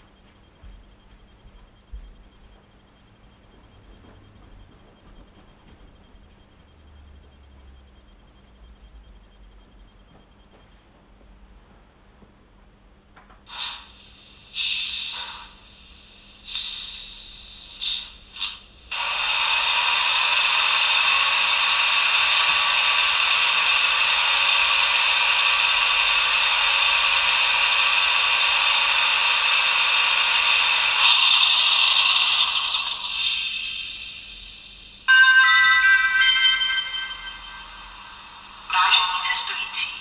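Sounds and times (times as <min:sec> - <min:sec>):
locomotive machinery running sound: 0:00.0 - 0:11.4, 0:13.2 - 0:40.0.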